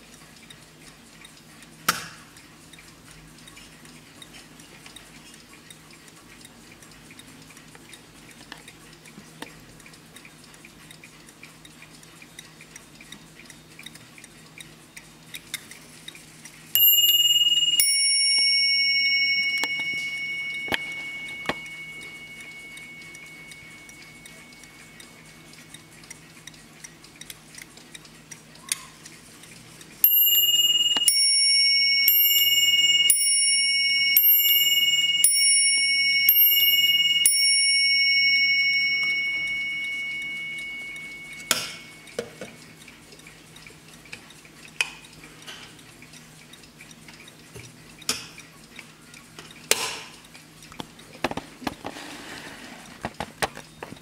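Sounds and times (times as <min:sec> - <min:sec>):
mantel clock ticking: 0:00.0 - 0:54.0
clock bells chiming: 0:16.8 - 0:25.5, 0:30.0 - 0:42.5.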